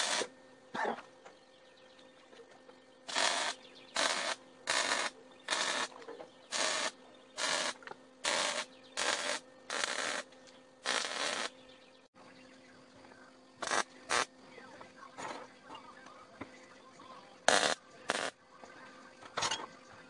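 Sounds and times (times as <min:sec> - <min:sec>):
arc welding bursts: 0:00.0 - 0:00.3, 0:03.0 - 0:11.6, 0:13.6 - 0:14.3, 0:17.5 - 0:18.4
steady electrical hum: 0:00.0 - 0:20.0.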